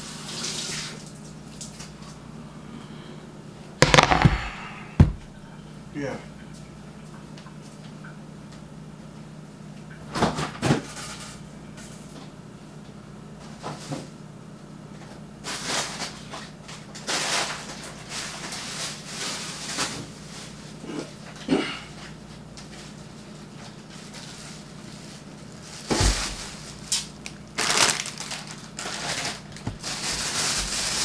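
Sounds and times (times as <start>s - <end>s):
steady low hum: 1.0s - 10.1s
loud knocks: 3.8s - 5.3s.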